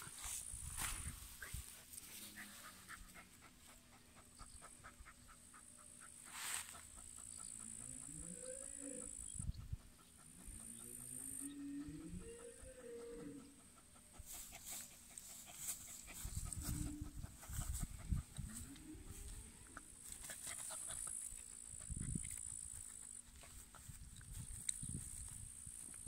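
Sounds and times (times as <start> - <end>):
scraping and rustling in dry grass: 0.0 - 3.2, 6.2 - 6.9, 14.2 - 26.0.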